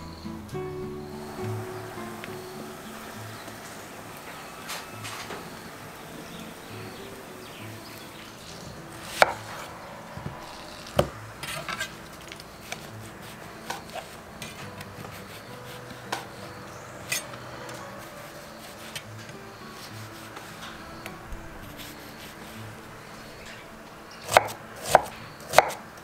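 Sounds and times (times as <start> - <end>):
knife chopping on wooden board: 9.1 - 9.6, 11.0 - 11.6, 24.3 - 25.8.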